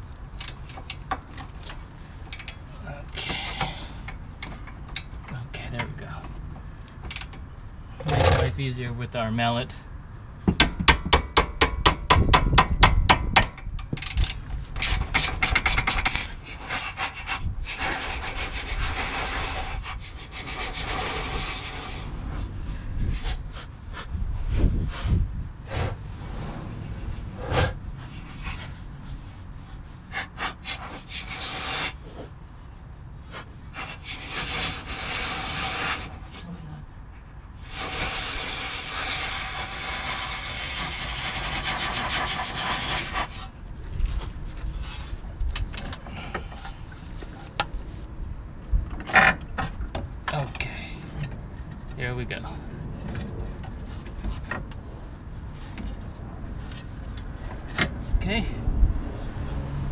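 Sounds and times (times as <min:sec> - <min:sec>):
metal parts knocking and scraping: 0:08.0 - 0:08.6, 0:10.5 - 0:17.4.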